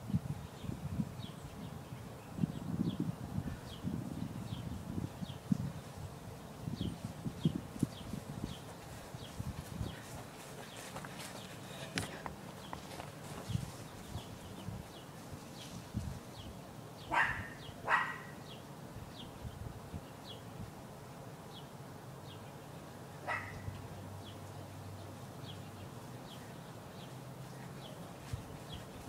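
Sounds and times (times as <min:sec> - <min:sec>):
dog barking: 0:17.1 - 0:18.4, 0:23.2 - 0:23.7.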